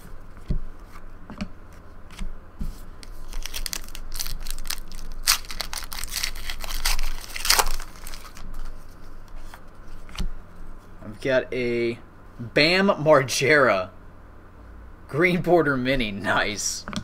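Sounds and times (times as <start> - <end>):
foil wrapper tearing and crinkling: 3.1 - 8.7.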